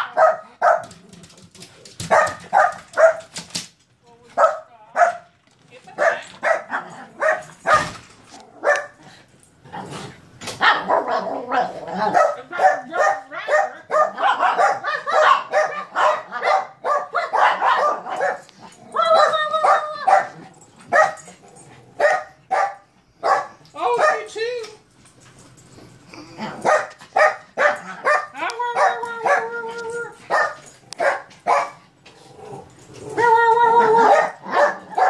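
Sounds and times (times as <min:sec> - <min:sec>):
small dogs barking and yipping: 0:00.0 - 0:01.0, 0:01.8 - 0:03.4, 0:06.0 - 0:09.0, 0:10.5 - 0:24.5, 0:26.4 - 0:31.9, 0:33.0 - 0:35.0.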